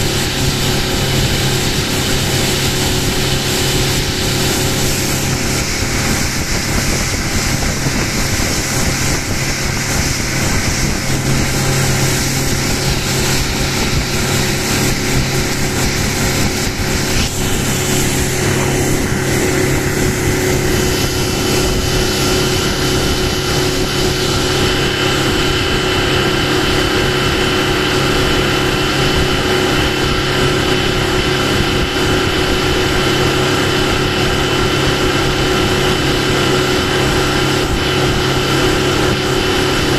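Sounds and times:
outboard motor running: 0.0s - 39.9s
water rushing: 0.0s - 39.9s
wind: 0.0s - 39.9s.

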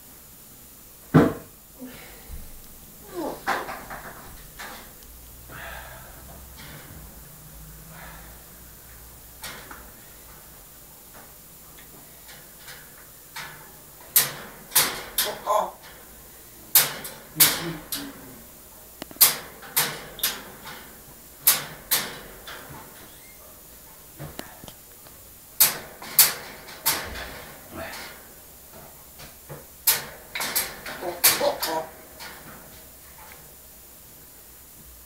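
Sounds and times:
parrot clicking and knocking: 13.4s - 16.0s, 16.7s - 17.8s.

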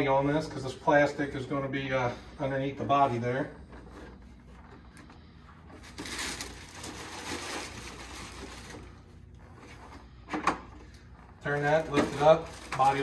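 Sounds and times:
plastic bag crinkling: 5.8s - 9.2s, 11.4s - 13.0s.

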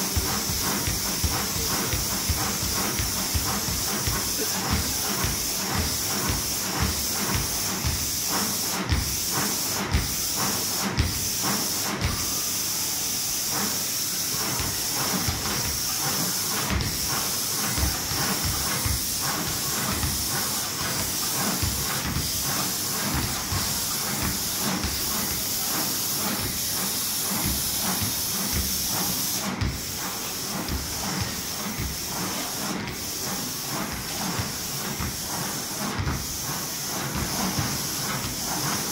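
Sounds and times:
basketballs bouncing on wooden floor: 0.1s - 8.0s, 17.8s - 20.2s, 27.4s - 28.8s, 29.6s - 29.9s, 30.7s - 32.0s, 34.4s - 35.2s, 36.0s - 36.3s.

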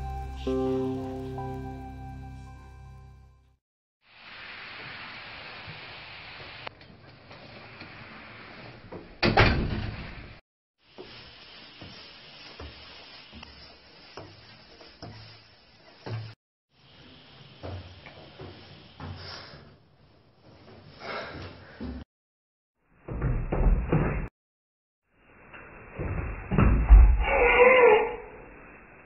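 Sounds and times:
room hiss: 4.1s - 6.7s, 10.8s - 20.8s.

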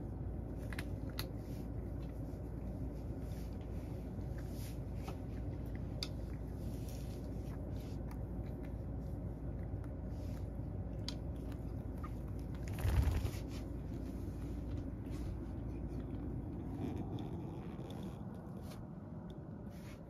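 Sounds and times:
steady low hum: 0.0s - 20.0s
cat crunching dry kibble: 0.2s - 14.5s, 15.3s - 19.4s.

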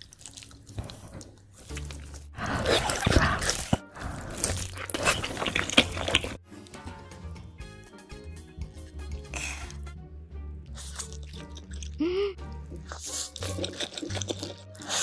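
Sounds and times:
crunchy chewing of fried chicken: 0.0s - 6.4s, 10.7s - 12.1s, 12.7s - 15.0s.

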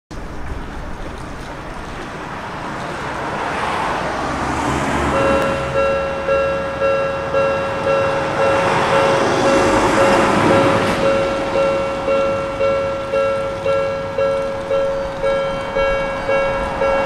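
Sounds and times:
street traffic noise: 0.1s - 17.0s
level crossing warning bell: 5.1s - 17.0s.

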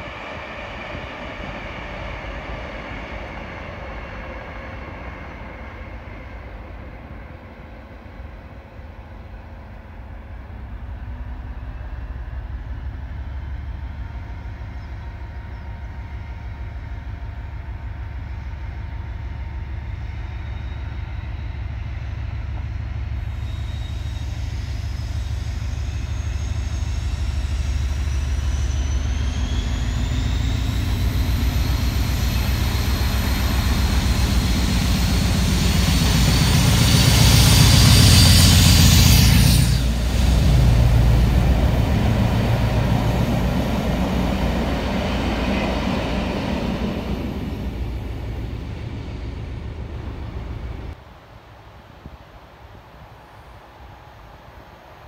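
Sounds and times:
diesel locomotive engine rumble: 0.0s - 55.0s
high rising whines: 24.8s - 51.0s.

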